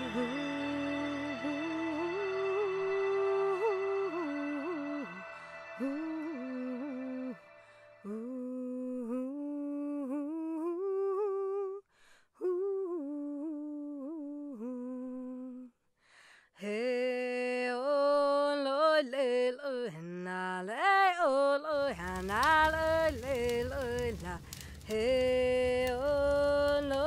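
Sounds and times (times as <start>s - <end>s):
voice humming slow melody: 12.4s - 15.8s.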